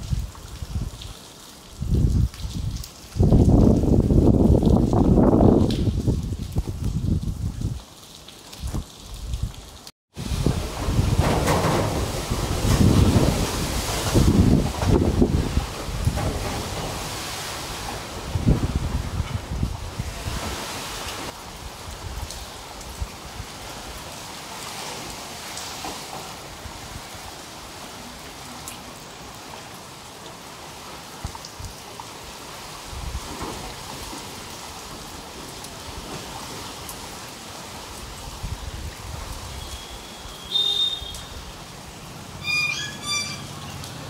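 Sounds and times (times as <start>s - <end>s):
wind gusts rumbling on microphone: 0.0s - 1.1s, 1.7s - 7.8s, 8.6s - 24.0s, 32.8s - 33.9s, 38.0s - 39.6s
rain and wind hissing: 0.0s - 44.0s
brief high tone: 42.4s - 43.7s.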